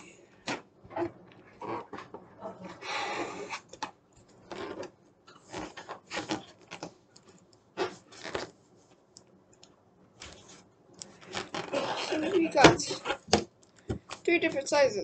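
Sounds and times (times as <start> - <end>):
rubber balloon rubbing and stretching: 0.4 - 3.7, 4.4 - 6.9, 7.8 - 8.6, 10.3 - 13.4.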